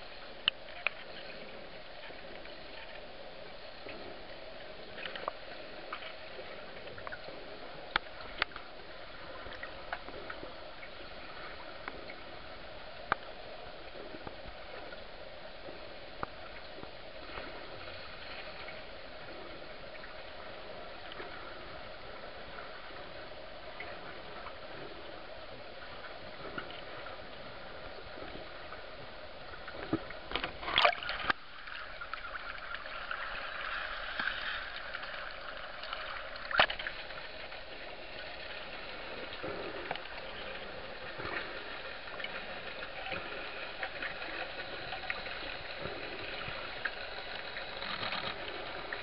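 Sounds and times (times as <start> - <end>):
muffled underwater hiss: 0.0 - 49.0
sharp underwater clicks and pops: 35.8 - 37.0, 47.4 - 48.5.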